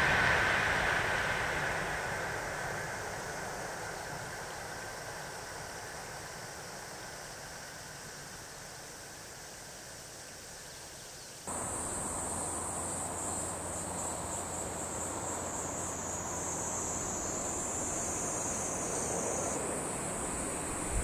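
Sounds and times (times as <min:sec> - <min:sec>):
insects singing drone: 0:00.0 - 0:21.0
low background rumble: 0:11.5 - 0:21.0.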